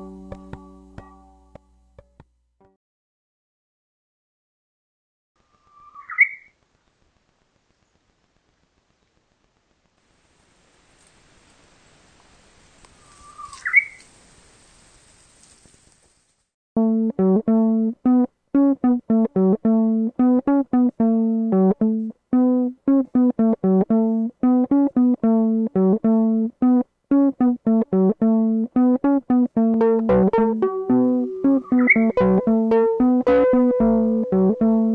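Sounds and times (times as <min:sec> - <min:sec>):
background music instruments: 0:00.0 - 0:02.2, 0:16.8 - 0:34.9
plucked string melody: 0:00.0 - 0:02.2, 0:16.8 - 0:34.9.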